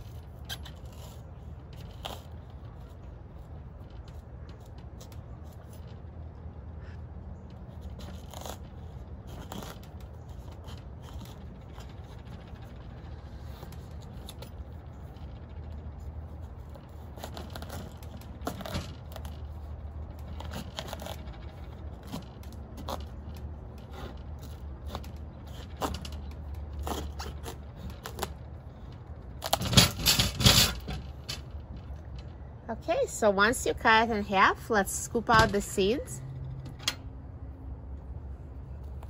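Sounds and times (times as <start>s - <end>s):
knife scraping and crunching squash: 0.0s - 3.0s, 7.7s - 12.3s, 16.4s - 30.9s.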